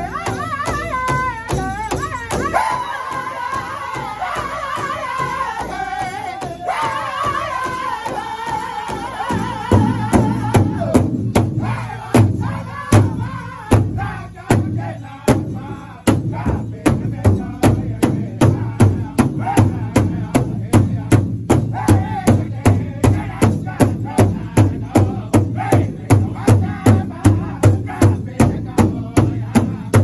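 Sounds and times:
big hide drum beating: 0:00.0 - 0:30.0
group singing: 0:00.0 - 0:30.0.

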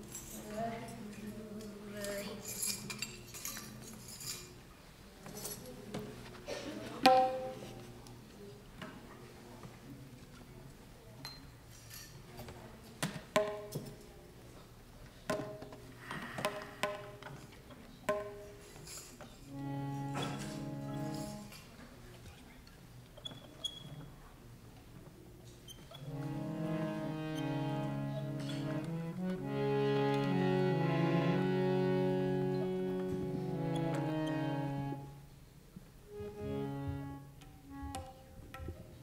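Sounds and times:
harmonium chord held: 0:19.5 - 0:21.6, 0:26.1 - 0:35.3, 0:36.1 - 0:37.9
taps with ringing notes: 0:19.5 - 0:21.6.

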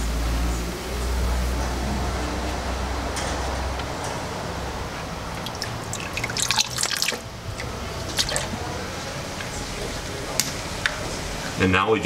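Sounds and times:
oil pouring and splashing: 0:05.2 - 0:08.6.

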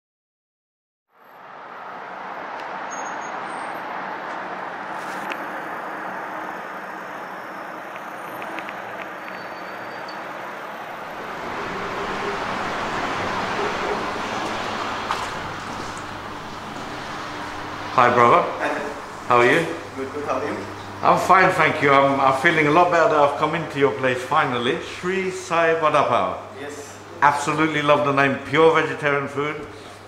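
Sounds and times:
passing road traffic hiss: 0:01.2 - 0:23.8.

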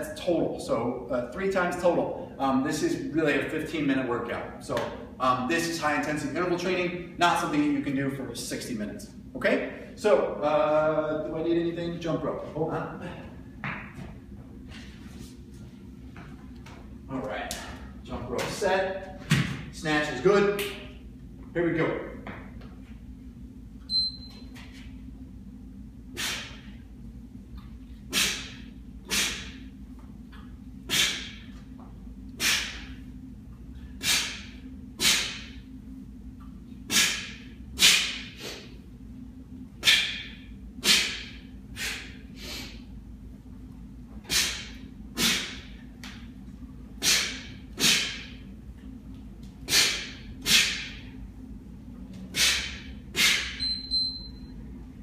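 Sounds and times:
steady low hum: 0:00.0 - 0:55.0
interval timer beep: 0:23.9 - 0:24.4, 0:53.6 - 0:54.5.

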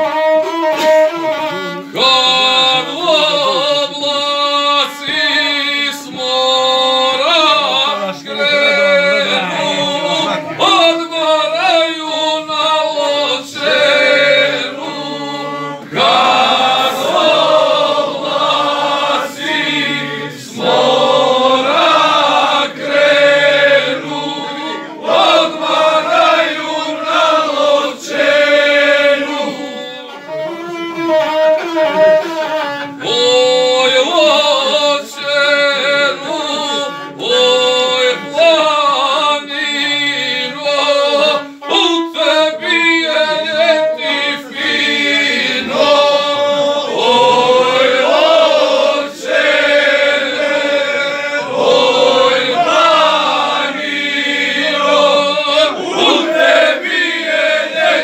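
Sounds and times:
bowed one-string fiddle: 0:00.0 - 0:05.2, 0:12.4 - 0:48.2
man singing epic song: 0:00.0 - 0:30.2, 0:33.0 - 0:58.0.

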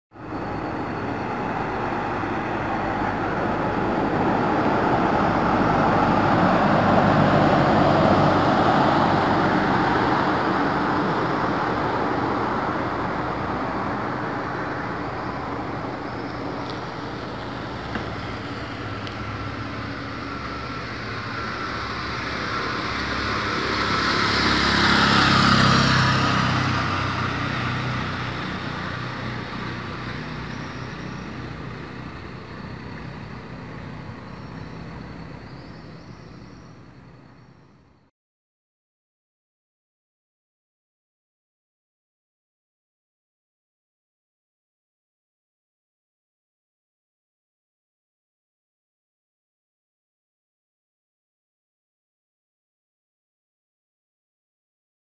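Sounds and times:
vehicle engine passing: 0:00.2 - 0:35.6
vehicle passing: 0:00.2 - 0:37.3.

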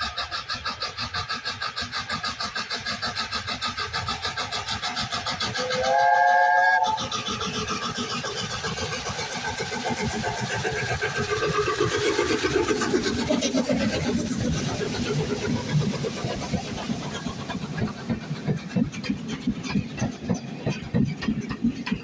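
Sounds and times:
steam locomotive exhaust beats: 0:00.0 - 0:22.0
steam locomotive chime whistle: 0:05.6 - 0:07.0.

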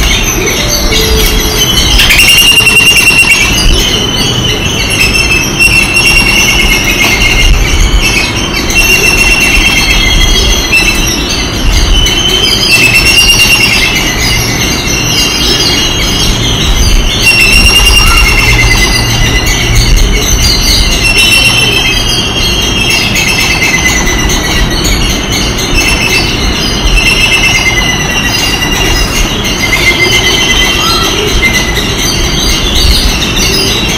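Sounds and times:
birds chirping: 0:00.0 - 0:33.9
steady low rumble: 0:15.8 - 0:22.5.

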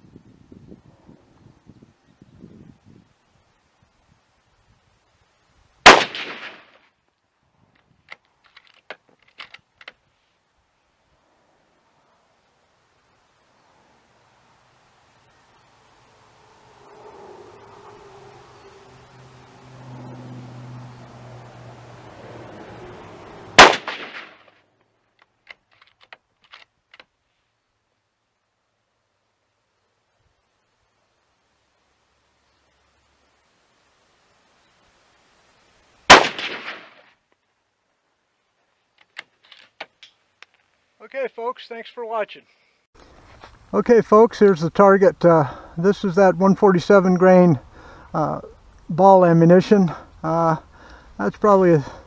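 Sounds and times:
rifle shot: 0:05.8 - 0:06.8, 0:23.6 - 0:24.5, 0:36.1 - 0:37.1.

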